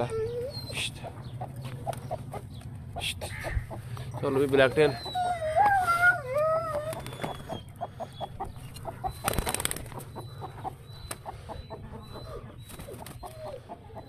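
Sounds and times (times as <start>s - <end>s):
chicken clucking: 9.9s - 14.0s.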